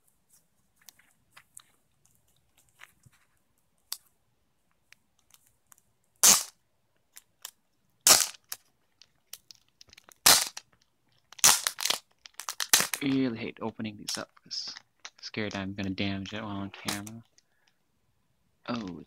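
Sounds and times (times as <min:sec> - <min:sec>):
plastic sleeve crinkling: 0:04.8 - 0:13.3, 0:14.0 - 0:17.8
loud short crackles: 0:06.2 - 0:06.6, 0:08.0 - 0:08.6, 0:11.4 - 0:13.1.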